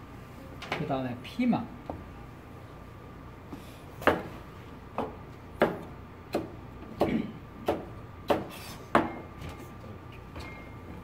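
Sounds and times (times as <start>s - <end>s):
knife chopping on cutting board: 4.0s - 4.4s, 5.0s - 9.2s.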